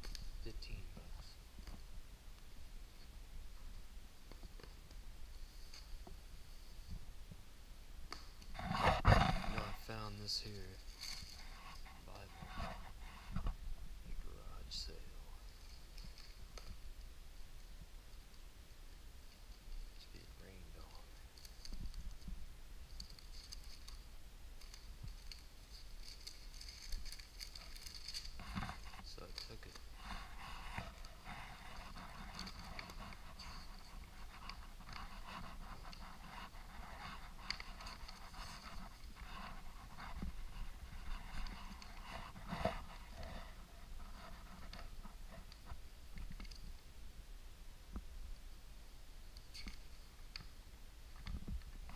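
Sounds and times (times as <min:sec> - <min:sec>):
book pages being leafed through: 0:24.6 - 0:43.6.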